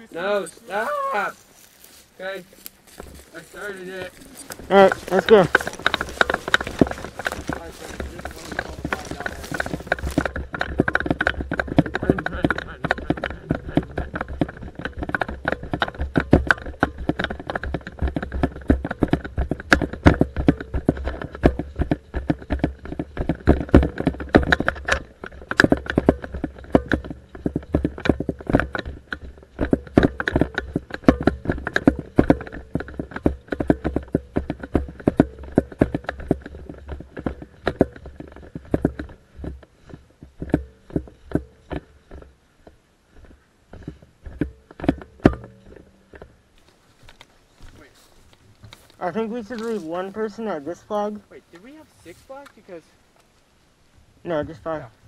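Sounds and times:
footsteps on dry grass: 0:00.0 - 0:11.0, 0:46.6 - 0:55.0.

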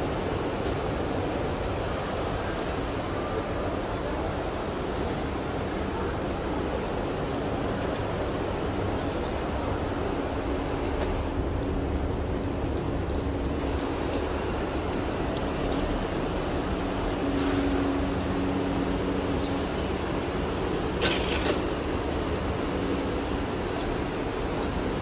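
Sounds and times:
mechanical hum and rumble: 0:00.0 - 0:25.0
water splashing onto concrete: 0:06.8 - 0:16.4.

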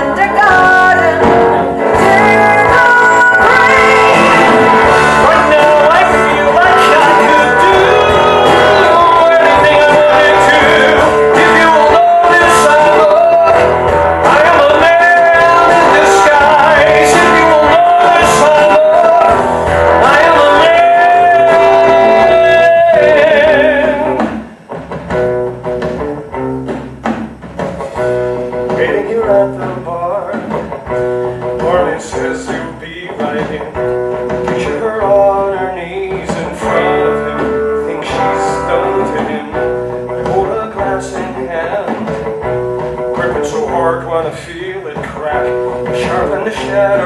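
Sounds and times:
live rock band with guitar: 0:00.0 - 0:47.0
singer holding long notes: 0:00.1 - 0:24.4.

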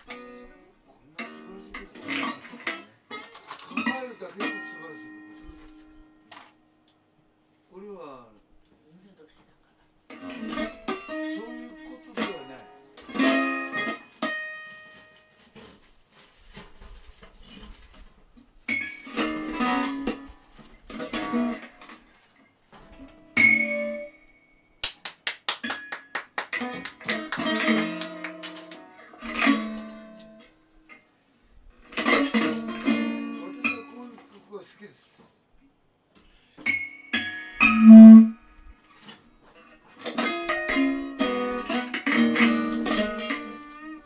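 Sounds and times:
electric guitar: 0:00.0 - 0:07.0, 0:10.1 - 0:15.3, 0:18.7 - 0:24.3, 0:25.6 - 0:31.0, 0:31.7 - 0:34.3, 0:36.6 - 0:44.0.

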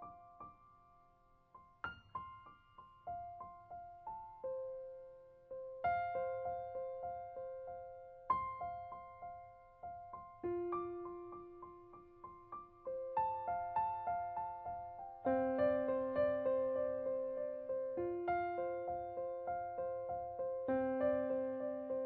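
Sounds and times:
gentle piano music: 0:00.0 - 0:22.0.

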